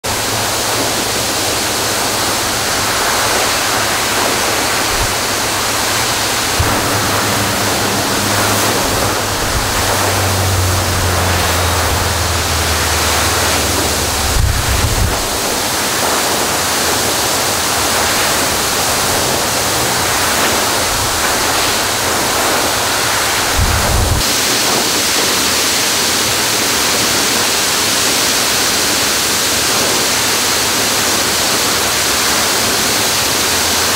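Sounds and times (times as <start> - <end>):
water gushing from hydrant: 0.0 - 33.9
low hum: 4.9 - 16.5.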